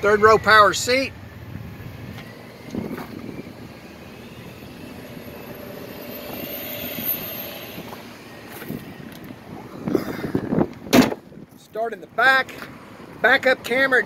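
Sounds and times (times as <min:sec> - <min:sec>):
seat electric motor whirring: 0:01.3 - 0:10.9
thump: 0:10.9 - 0:11.2.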